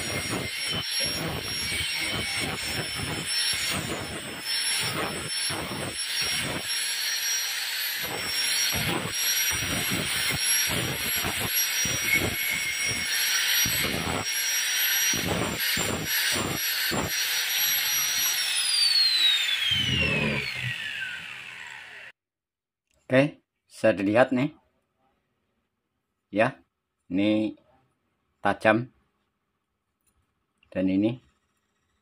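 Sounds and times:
angle grinder whining: 0:00.0 - 0:22.1
grinder disc grinding steel: 0:00.0 - 0:22.1
grinder spinning down: 0:00.0 - 0:22.1.

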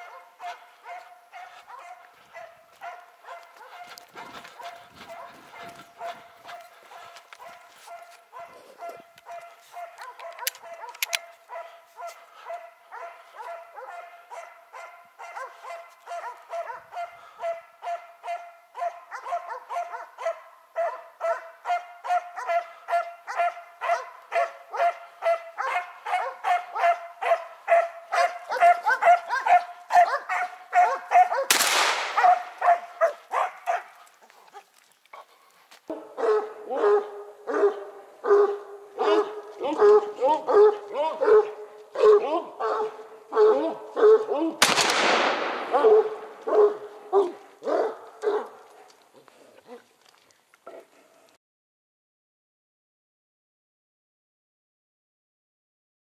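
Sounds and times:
dogs barking rapidly: 0:00.0 - 0:34.6, 0:35.9 - 0:44.6, 0:45.5 - 0:48.7.

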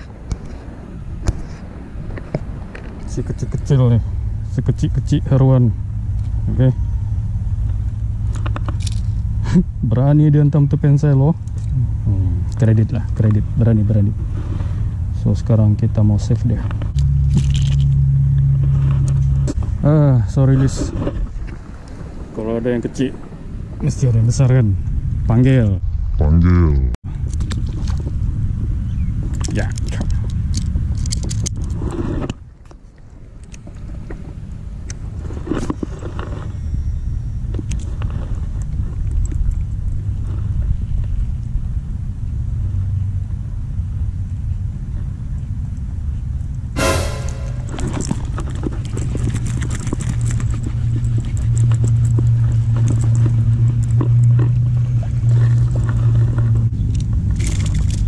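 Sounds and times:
steady low hum: 0:02.6 - 0:20.2, 0:46.8 - 0:48.3.

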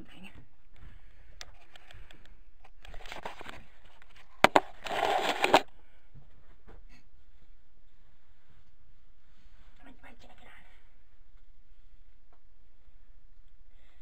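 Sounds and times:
camera rubbing against clothing: 0:02.8 - 0:05.7
fabric rustling: 0:03.0 - 0:05.7.

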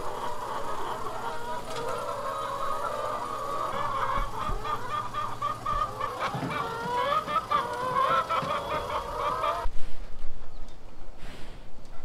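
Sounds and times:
hens clucking and calling: 0:00.0 - 0:09.7.

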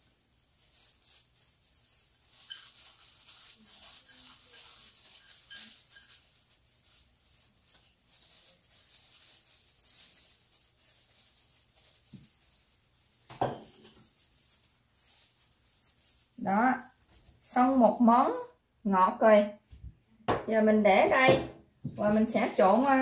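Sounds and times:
handling dishes and food: 0:13.2 - 0:14.2.

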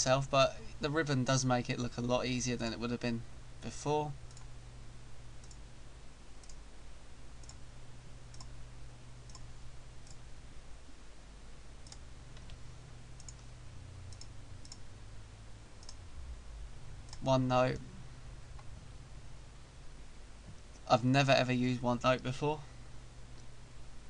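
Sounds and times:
low steady hum: 0:00.0 - 0:24.0
computer mouse clicking: 0:04.3 - 0:04.5, 0:05.4 - 0:05.6, 0:06.4 - 0:06.6, 0:07.4 - 0:07.6, 0:08.3 - 0:08.6, 0:09.3 - 0:10.2, 0:11.8 - 0:12.6, 0:13.2 - 0:13.5, 0:14.1 - 0:14.8, 0:15.8 - 0:16.0.

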